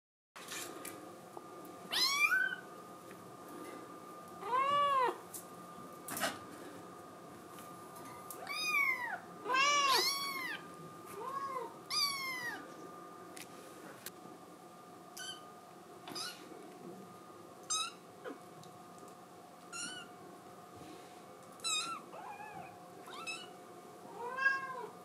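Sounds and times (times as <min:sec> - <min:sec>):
kitten meowing: 0:01.9 - 0:02.6, 0:08.4 - 0:10.6, 0:16.1 - 0:16.4, 0:19.7 - 0:20.1, 0:21.6 - 0:23.5.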